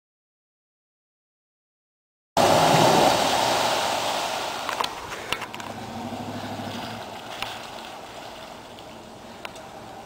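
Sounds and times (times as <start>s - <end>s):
loud rush of noise: 2.4s - 7.8s
vehicle engine running: 5.5s - 10.0s.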